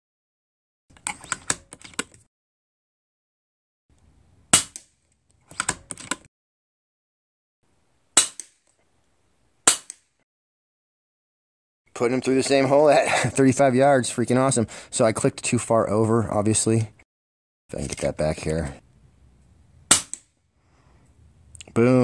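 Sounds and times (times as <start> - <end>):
air rifle shots: 9.6 - 10.1, 19.9 - 20.3.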